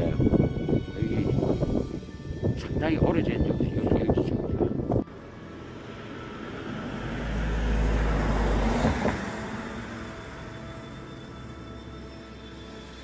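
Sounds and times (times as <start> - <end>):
vehicle passing with deep rumble: 4.5 - 13.0.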